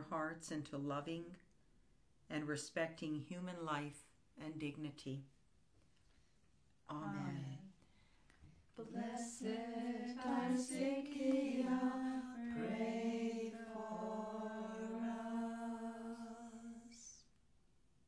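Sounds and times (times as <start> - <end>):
unaccompanied liturgical chant: 8.8 - 17.3.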